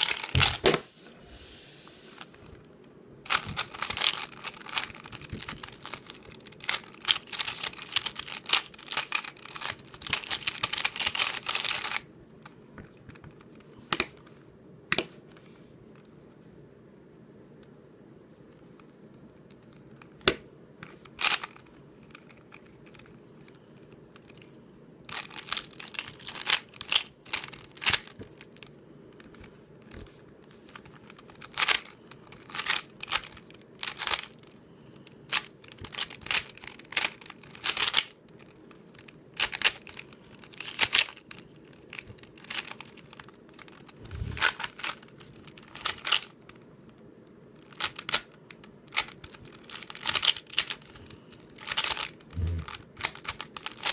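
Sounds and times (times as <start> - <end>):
speed cube clicking and clacking: 3.3 - 12.0, 21.1 - 23.1, 25.1 - 28.6, 30.7 - 34.5, 35.3 - 46.5, 47.6 - 53.9.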